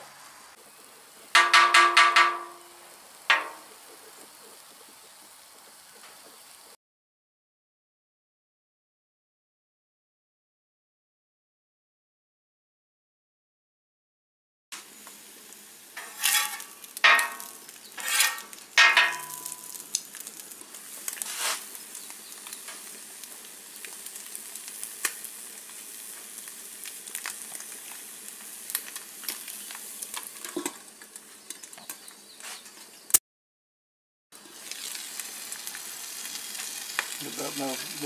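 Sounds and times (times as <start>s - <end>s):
food sizzling on a griddle: 0.0s - 6.8s, 14.8s - 33.2s, 34.4s - 38.0s
metal scrapes and clanks: 16.0s - 19.6s.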